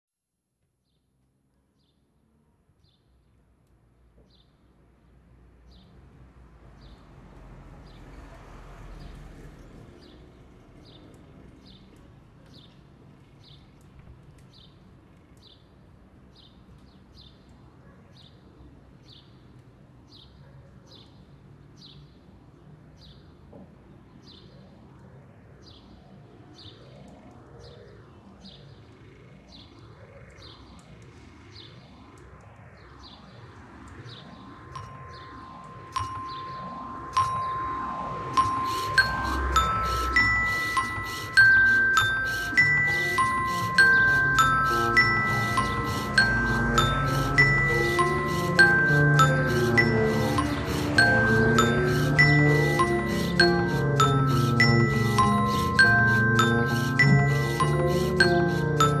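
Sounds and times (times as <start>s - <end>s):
soft sweeping tones: 33.8s - 59.0s
faint high chirps: 34.4s - 59.0s
mallet striking glockenspiel bar: 34.8s - 59.0s.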